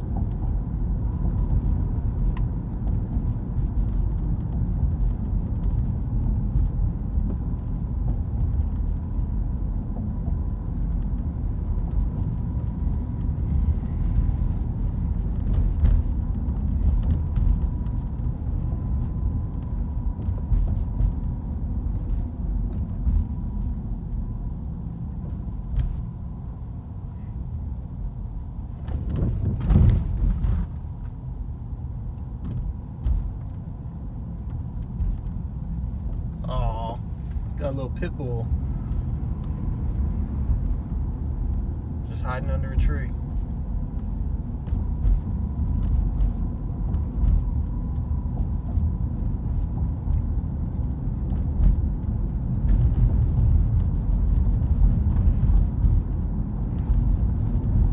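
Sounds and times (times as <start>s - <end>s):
car cabin road and engine rumble: 0.0s - 57.9s.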